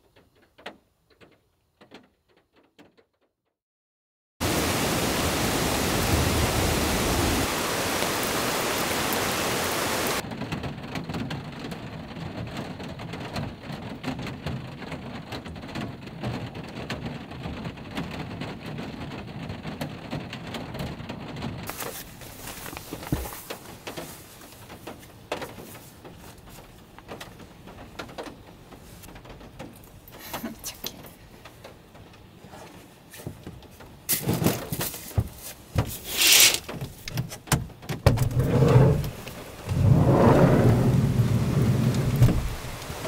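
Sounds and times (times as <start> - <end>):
heavy rain hissing: 4.4 - 10.2, 35.9 - 36.7, 38.3 - 43.0
muffled rain patter: 4.4 - 43.0.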